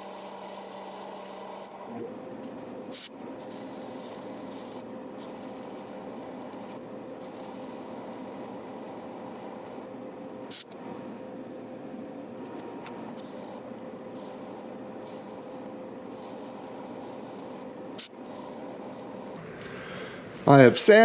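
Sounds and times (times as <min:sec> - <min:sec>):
sandpaper hissing on spinning wood: 0:00.0 - 0:01.7, 0:02.9 - 0:09.9, 0:13.1 - 0:19.4
wood lathe humming: 0:00.0 - 0:10.2, 0:11.9 - 0:20.7.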